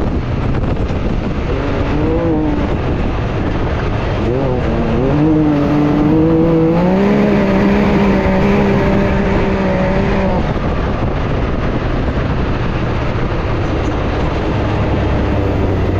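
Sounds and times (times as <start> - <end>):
tyres on dirt and wind rushing: 0.0 - 15.9
engine under power: 0.4 - 15.9.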